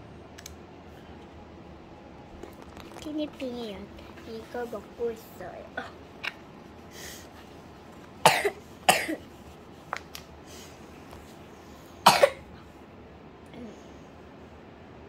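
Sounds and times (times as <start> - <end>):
faint clicks: 0.4 - 0.6
girl coughing: 8.2 - 9.2, 12.0 - 12.5.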